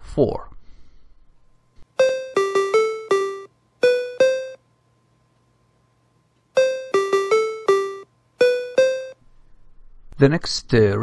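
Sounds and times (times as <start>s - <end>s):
square-wave ringtone beeps: 2.0s - 4.6s, 6.6s - 9.2s.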